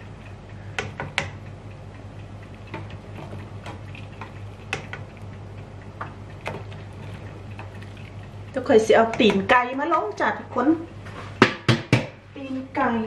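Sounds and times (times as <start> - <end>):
steady low hum: 0.0 - 13.0
kitchenware clicking and tapping: 9.0 - 9.8, 11.4 - 12.2.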